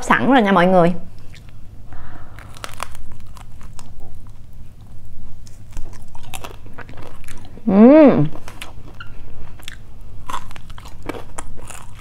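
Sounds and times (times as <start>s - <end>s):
crunchy chewing: 1.2s - 7.7s, 8.3s - 12.0s.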